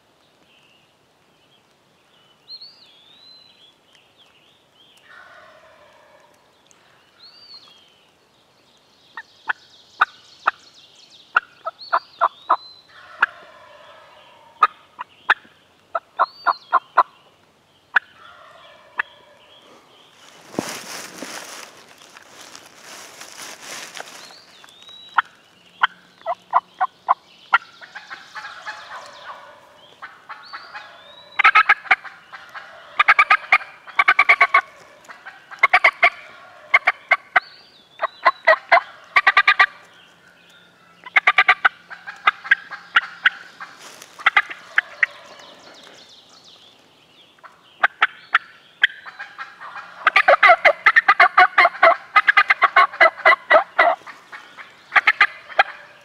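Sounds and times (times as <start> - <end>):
turkey gobbling: 12.9 - 17.1, 17.9 - 19.4, 27.5 - 37.4, 38.0 - 39.8, 41.0 - 45.9, 47.4 - 56.0.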